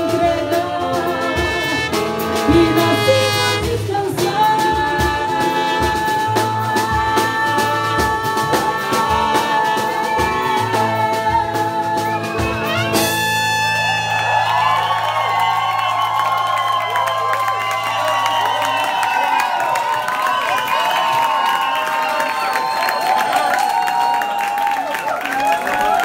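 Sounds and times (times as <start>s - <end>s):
drum kit beat: 0.0s - 13.5s
brass horns holding notes: 0.9s - 4.3s, 12.6s - 14.7s
guitars strumming: 1.3s - 4.6s.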